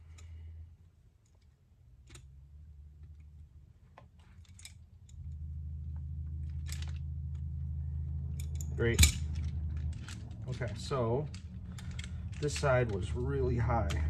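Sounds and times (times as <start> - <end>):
low steady hum: 0.0 - 14.0
small metallic clicks: 0.0 - 14.0.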